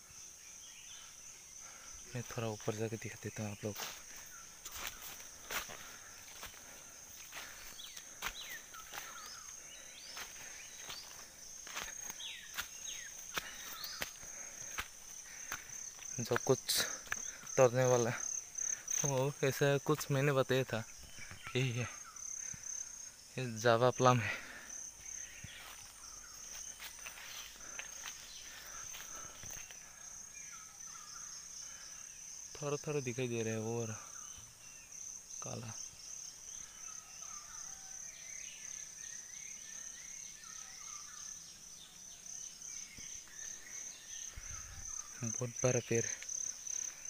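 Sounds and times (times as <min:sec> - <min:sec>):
high-pitched insect drone: 0:00.0 - 0:47.0
footsteps on forest floor: 0:01.7 - 0:22.7, 0:24.0 - 0:30.2, 0:42.9 - 0:47.0.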